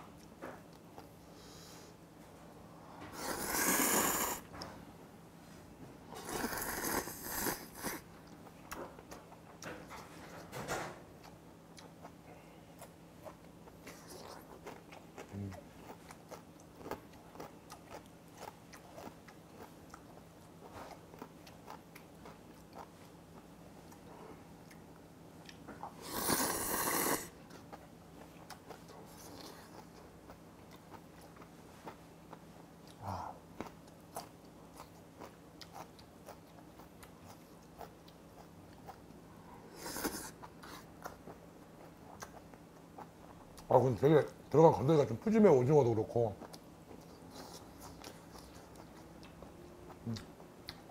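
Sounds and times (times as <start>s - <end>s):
quiet chewing with mouth clicks: 0.0s - 2.4s, 6.1s - 45.1s, 45.9s - 50.9s
slurping noodles: 3.2s - 4.4s, 6.2s - 8.0s, 26.0s - 27.3s.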